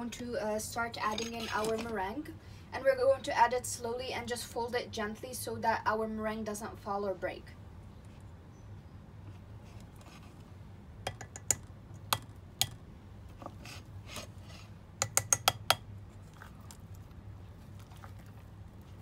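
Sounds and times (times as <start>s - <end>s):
utensil clicks and bowls knocking: 11.0s - 12.8s, 15.0s - 15.9s.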